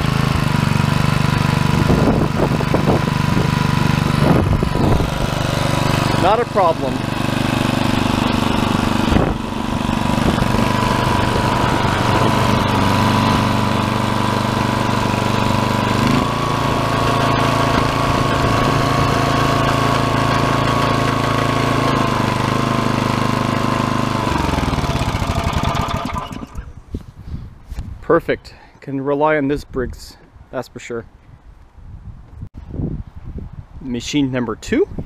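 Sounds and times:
tiller engine running: 0.0 - 26.8.

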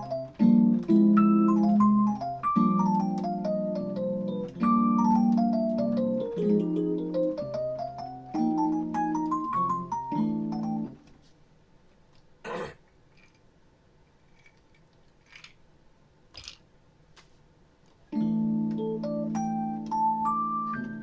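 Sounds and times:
digital piano chord and melody: 0.0 - 11.1, 18.1 - 21.0.

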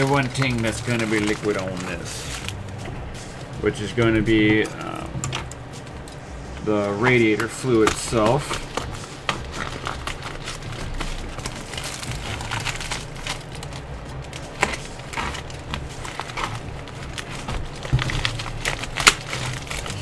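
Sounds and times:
plastic wrapping crinkling: 0.0 - 20.0
scissors snipping plastic: 7.4 - 20.0.

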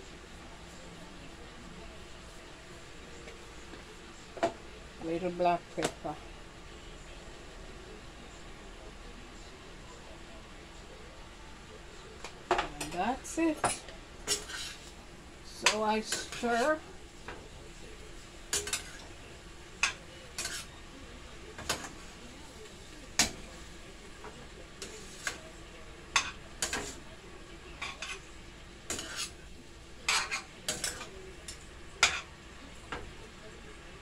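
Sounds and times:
cabbage sizzling: 12.4 - 33.4
spoon scraping a metal pot: 28.9 - 29.4.

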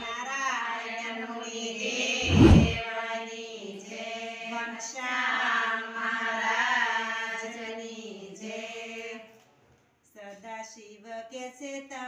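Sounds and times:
women chanting in unison: 0.0 - 9.3
low drone: 2.2 - 2.8.

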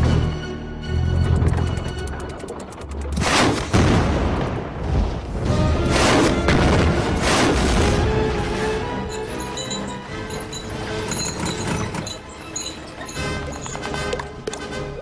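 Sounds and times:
explosion booms: 6.5 - 8.0.

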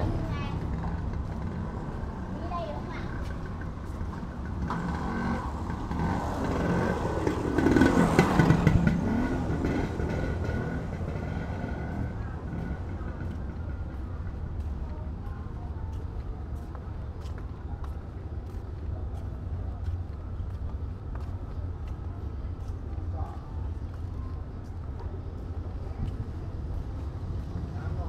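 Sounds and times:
low rumble of traffic: 0.0 - 28.0
vehicle passing close by: 4.6 - 13.0.

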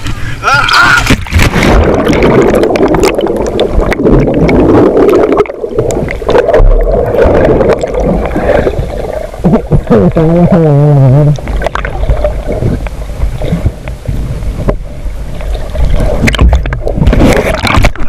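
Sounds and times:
muffled underwater water rushing: 0.0 - 18.0
bubbles clicking and popping: 1.2 - 9.3.

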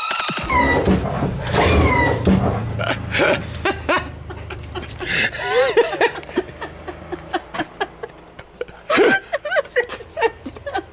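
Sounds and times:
woman laughing: 2.8 - 10.9.

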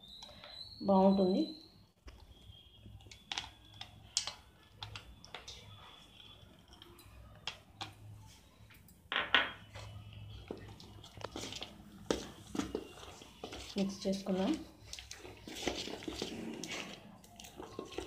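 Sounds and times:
spoon scraping metal bowl: 10.5 - 17.0.

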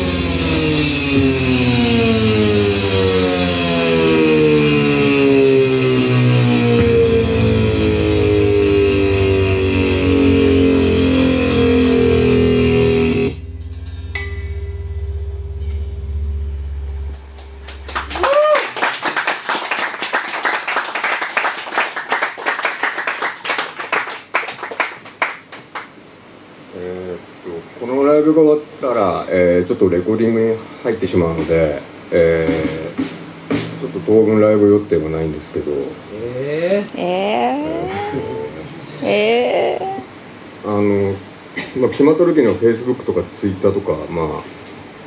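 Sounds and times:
low bass drone: 0.0 - 18.6, 31.2 - 36.2, 37.6 - 38.8
rock band closing chord: 0.0 - 20.2, 31.0 - 36.2
person whooping: 18.0 - 19.0, 37.4 - 40.1.

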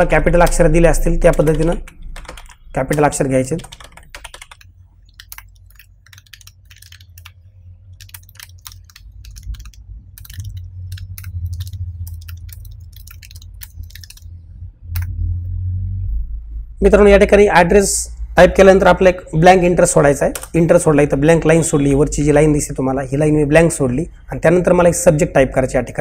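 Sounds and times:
low steady hum: 0.0 - 26.0
keyboard typing clicks: 1.2 - 14.3, 20.3 - 20.6.

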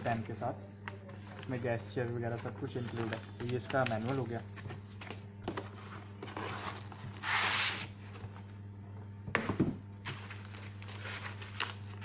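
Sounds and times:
packaging scraping rustle: 5.7 - 7.9, 10.1 - 12.0.

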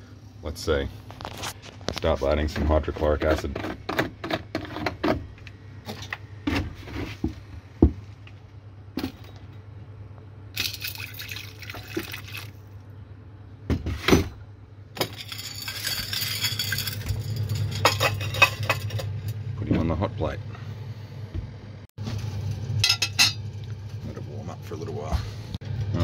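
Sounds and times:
liquid pouring into glass beaker: 10.6 - 12.5.

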